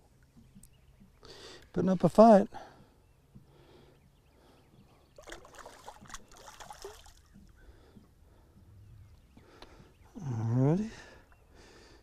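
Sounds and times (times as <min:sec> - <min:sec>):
water splashing and trickling: 0:05.2 - 0:08.0.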